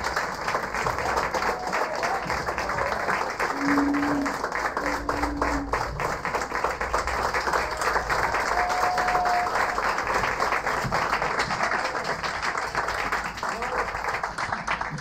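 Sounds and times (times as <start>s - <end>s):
audience applauding: 0.0s - 15.0s
crowd calling out: 1.3s - 6.1s, 7.4s - 9.8s.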